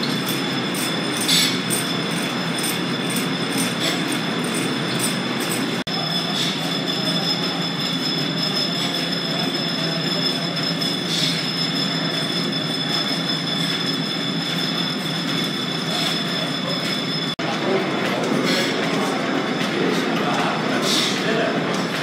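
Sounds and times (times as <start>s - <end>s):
high mechanical whine: 0.0s - 17.4s
belt-driven machinery clatter: 0.0s - 22.0s.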